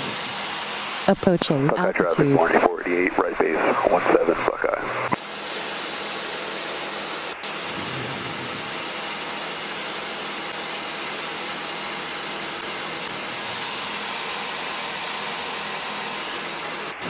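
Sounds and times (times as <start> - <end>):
radio squelch static hiss: 1.5 - 5.2.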